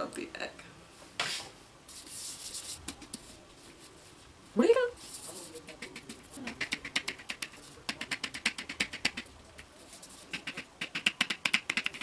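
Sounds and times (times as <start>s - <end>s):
fingers rubbing plastic shell: 5.6s - 12.0s.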